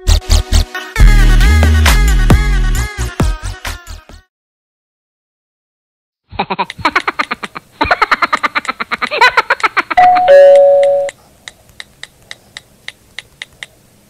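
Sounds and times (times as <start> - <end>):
doorbell two-tone chime: 10.0 - 11.1.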